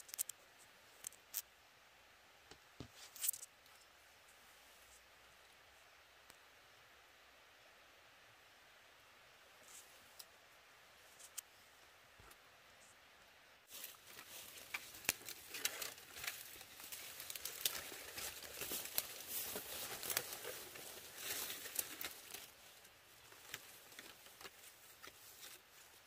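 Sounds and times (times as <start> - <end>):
dry leaves and twigs crackling: 0.0 - 0.4, 13.7 - 26.0.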